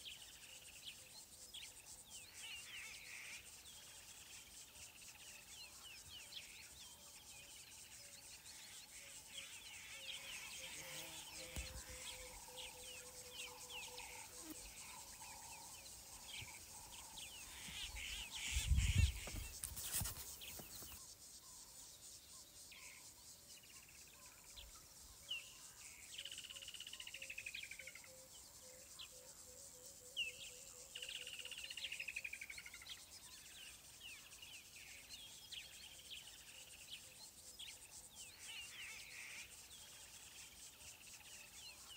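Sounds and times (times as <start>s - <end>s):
insects trilling: 0.0s - 41.9s
birds chirping and calling: 9.4s - 21.0s.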